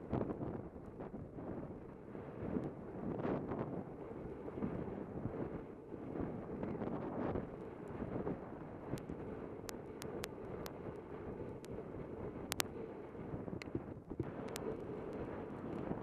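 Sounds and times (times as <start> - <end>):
wind buffeting microphone: 0.0 - 16.0
sharp clicks: 12.5 - 12.7, 14.4 - 15.8.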